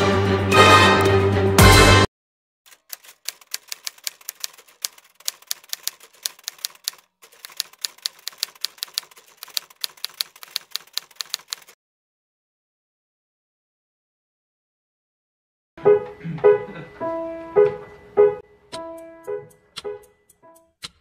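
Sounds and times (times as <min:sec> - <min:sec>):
music: 0:00.0 - 0:02.1, 0:15.8 - 0:21.0
typewriter key clicks: 0:02.7 - 0:11.8.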